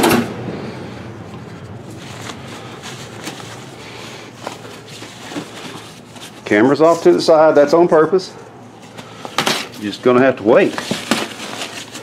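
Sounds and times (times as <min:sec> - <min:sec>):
cardboard box rustling: 0:01.9 - 0:07.1, 0:10.5 - 0:12.0.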